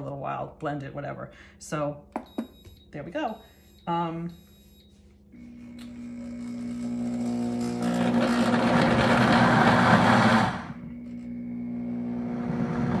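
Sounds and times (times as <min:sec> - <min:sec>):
blender chopping vegetables: 0:05.4 - 0:13.0.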